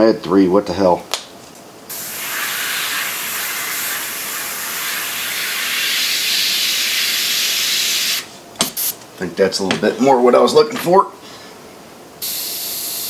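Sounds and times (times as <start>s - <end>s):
airbrush spraying hiss: 1.9s - 9.0s, 12.2s - 13.0s.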